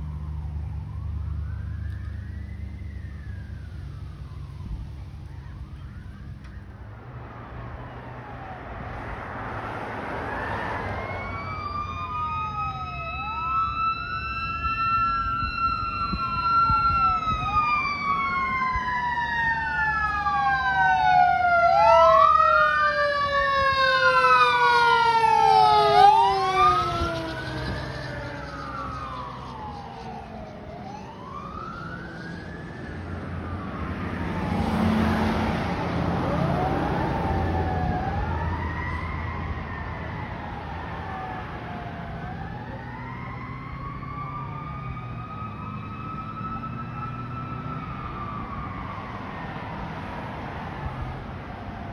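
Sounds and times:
second siren tone: 0.0 - 9.2, 10.0 - 49.7
fire engine siren wailing: 0.0 - 51.9.

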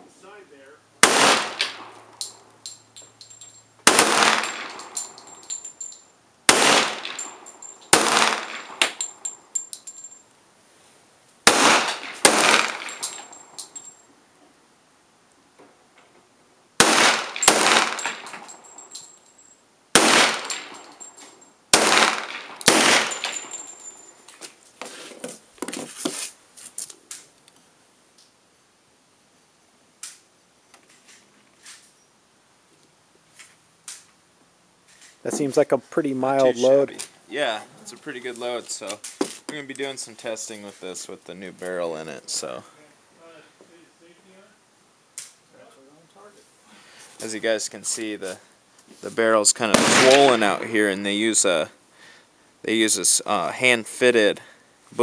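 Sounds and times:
pistol shots with echo: 1.0 - 2.4, 3.8 - 5.4, 6.5 - 9.2, 11.5 - 13.3, 16.8 - 18.5, 20.0 - 20.9, 21.7 - 23.7, 49.7 - 50.6.

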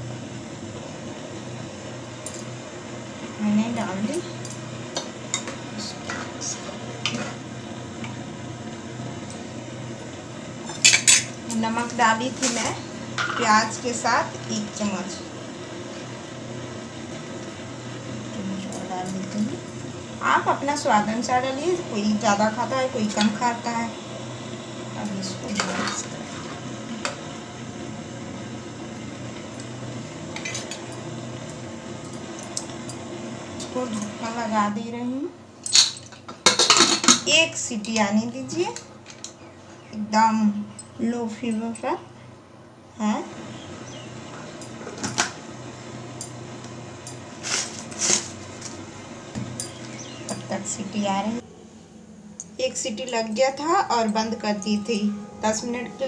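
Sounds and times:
metal spoon scraping a pot: 25.5 - 26.7
low hum: 48.4 - 56.0.

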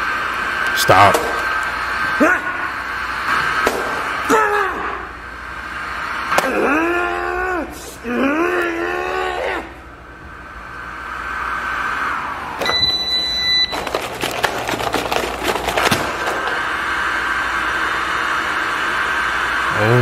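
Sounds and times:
beep: 12.6 - 13.8.

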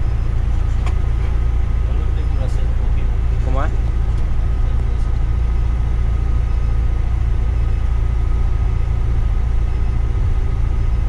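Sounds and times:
coach engine and tyres rumbling: 0.0 - 11.0.

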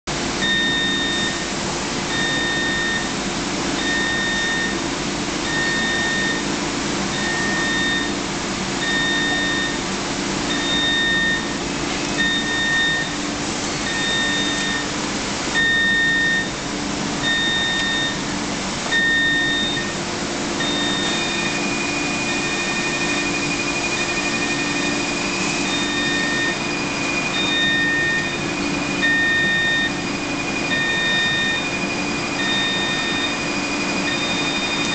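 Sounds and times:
machinery and air handling hum: 0.1 - 34.9
electronic beeper: 20.6 - 34.9.

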